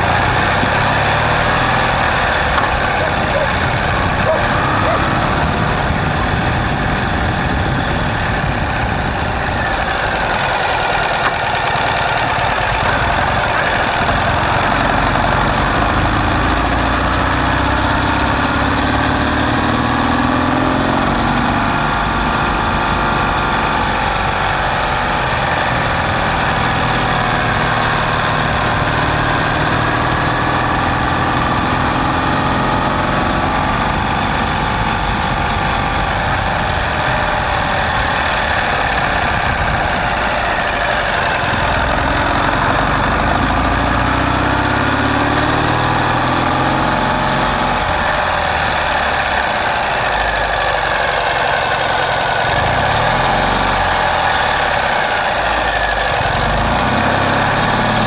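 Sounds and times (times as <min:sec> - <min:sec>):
steady rushing noise: 0:00.0 - 0:16.4
motorcycle engine revving: 0:00.0 - 0:58.0.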